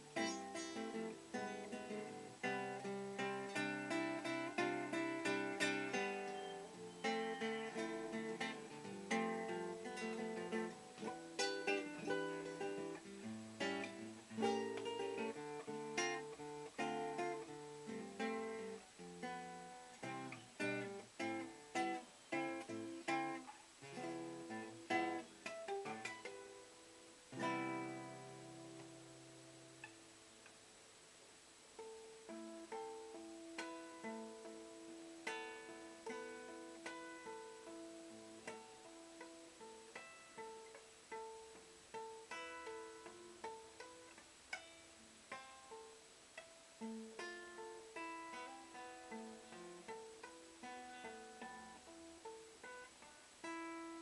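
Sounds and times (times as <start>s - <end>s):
fingerstyle acoustic guitar: 0.0s - 54.0s.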